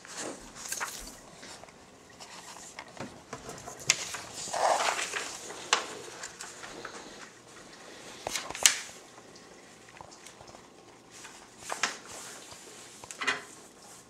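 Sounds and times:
paper rustling: 0:00.0 - 0:07.3, 0:08.2 - 0:08.9, 0:11.2 - 0:14.0.

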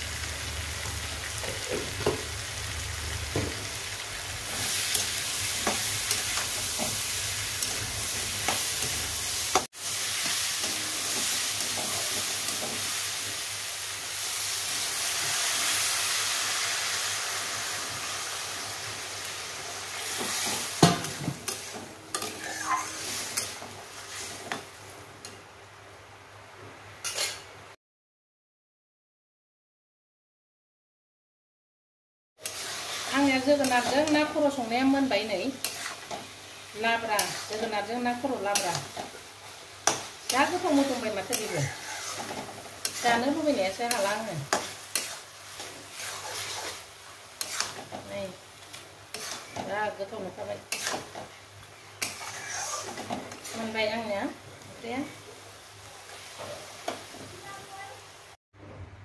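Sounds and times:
food sizzling in a wok: 0:00.0 - 0:27.8, 0:32.4 - 0:58.4
metal spatula scraping wok: 0:20.0 - 0:24.6, 0:27.0 - 0:27.5, 0:32.4 - 0:39.2, 0:39.8 - 0:48.0, 0:49.1 - 0:49.7, 0:50.3 - 0:51.3, 0:52.0 - 0:53.9.

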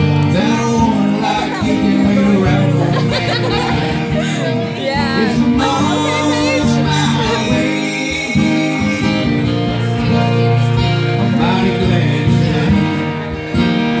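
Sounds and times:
acoustic guitars playing: 0:00.0 - 0:14.0
person singing: 0:00.1 - 0:13.2.

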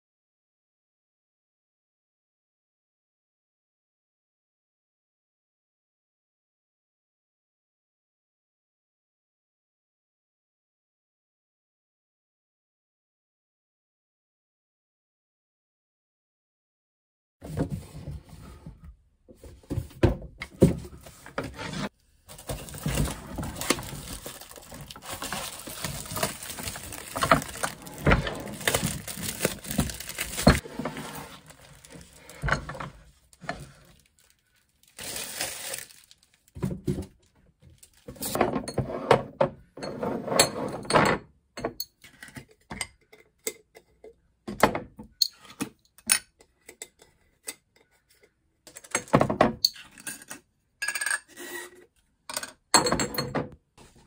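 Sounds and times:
rustling: 0:21.1 - 0:36.4
glass jars clinking: 0:48.9 - 0:51.3, 0:52.3 - 0:53.5.

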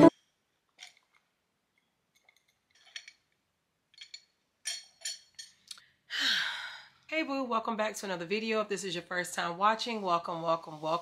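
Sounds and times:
glass and straw clinking: 0:04.0 - 0:05.6.

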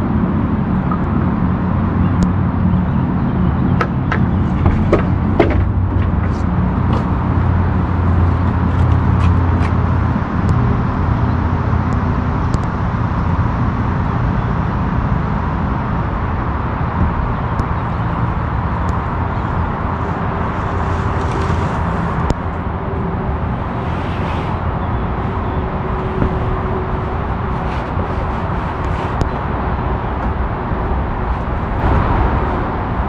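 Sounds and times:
low motor hum and rumble: 0:00.0 - 0:33.0.

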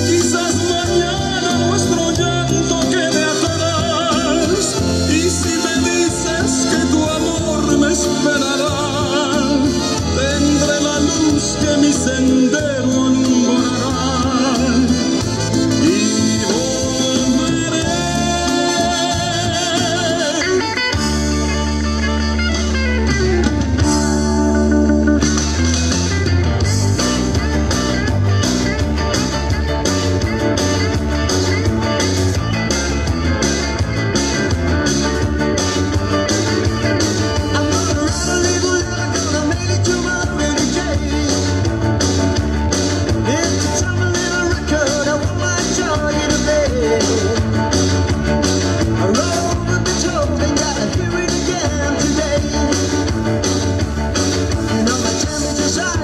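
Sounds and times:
dance music with singer: 0:00.0 - 0:24.4, 0:25.1 - 0:56.0.

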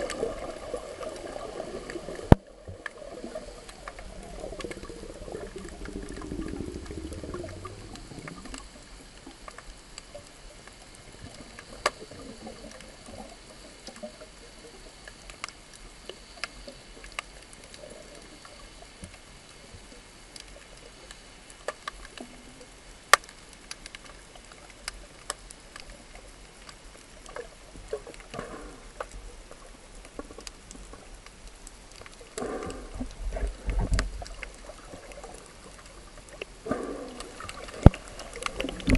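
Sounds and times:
bubbly burbling: 0:00.0 - 0:09.0, 0:36.6 - 0:38.9
underwater hiss: 0:00.0 - 0:22.6, 0:27.3 - 0:31.1, 0:31.7 - 0:38.9
sharp clicks and crackles: 0:00.0 - 0:38.9.

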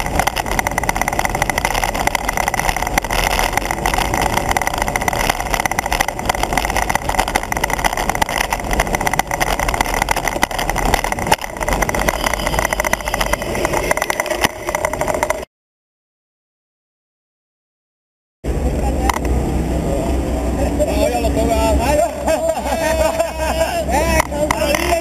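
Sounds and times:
wind rush on microphone: 0:00.0 - 0:15.4
road rumble: 0:00.0 - 0:15.5, 0:18.4 - 0:25.0.

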